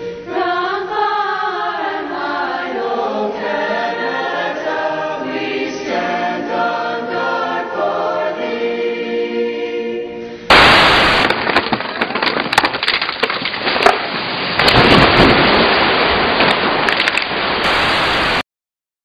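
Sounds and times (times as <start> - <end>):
crackling static with snaps: 15.7 - 17.8.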